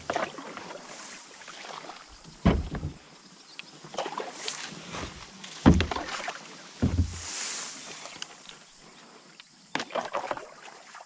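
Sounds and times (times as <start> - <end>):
dull knocks against kayak hull: 2.4 - 3.0, 5.6 - 6.2, 6.8 - 7.2.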